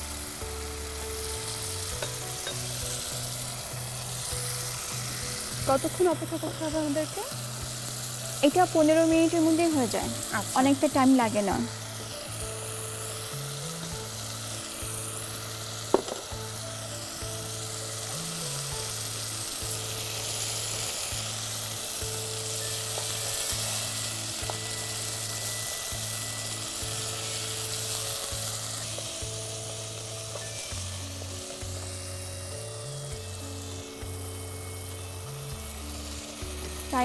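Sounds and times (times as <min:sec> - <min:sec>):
meat sizzling in a pot: 0:00.0 - 0:37.0.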